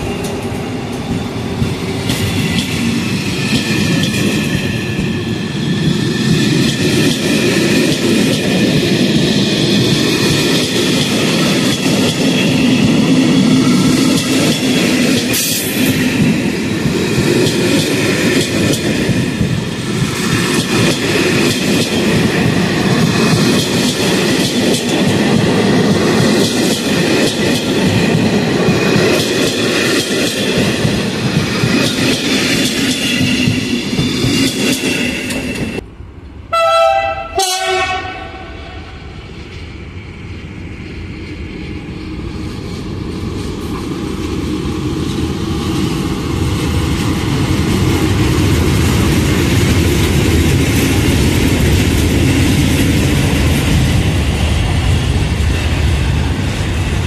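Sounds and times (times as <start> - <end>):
train coaches rolling past: 0.0 - 57.0
train horn blast: 36.5 - 39.0.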